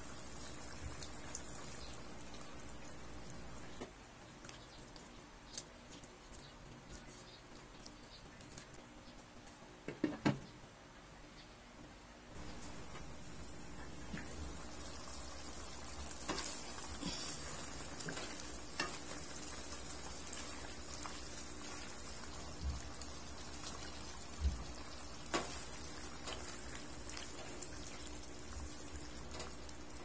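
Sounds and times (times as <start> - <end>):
stew bubbling in a pan: 0.0 - 5.1, 12.4 - 30.0
spatula stirring: 13.8 - 28.9.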